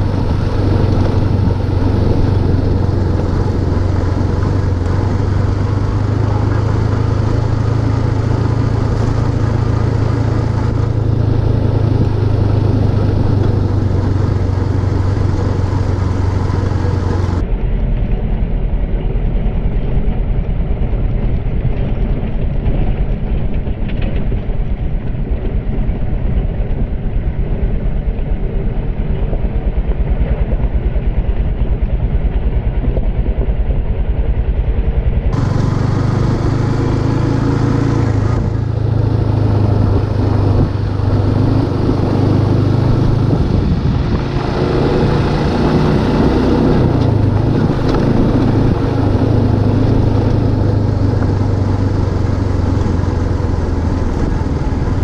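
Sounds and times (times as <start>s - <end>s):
motorcycle engine running: 0.0s - 55.0s
road and wind noise: 0.0s - 55.0s.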